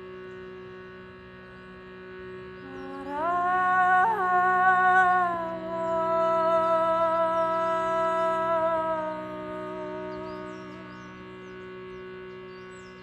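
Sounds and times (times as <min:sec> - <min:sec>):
shrutibox drone: 0:00.0 - 0:13.0
woman singing wordlessly: 0:02.6 - 0:11.2.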